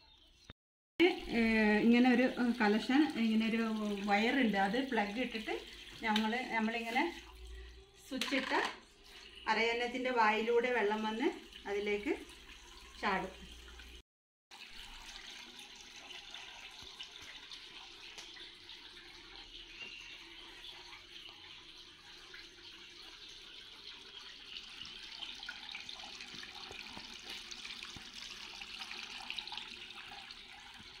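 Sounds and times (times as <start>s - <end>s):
fountain water splashing into bowl: 1.1s - 9.4s, 10.3s - 31.0s.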